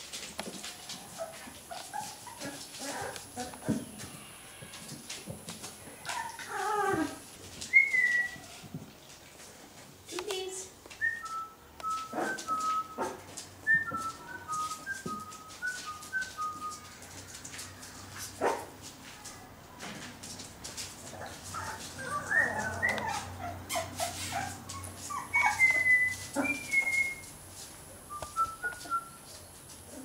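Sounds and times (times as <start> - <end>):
soft knocks and scuffling: 0.0 - 23.2
puppies whimpering: 5.9 - 8.5, 21.5 - 27.2
high-pitched puppy whines: 21.6 - 27.2.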